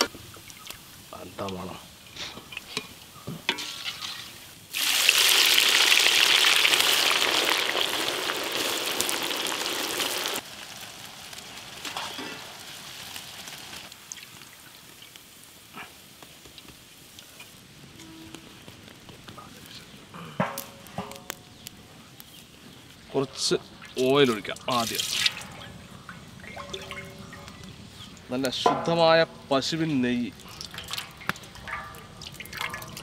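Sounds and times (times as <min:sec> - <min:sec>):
onions sizzling in hot oil: 0:00.0 - 0:25.6.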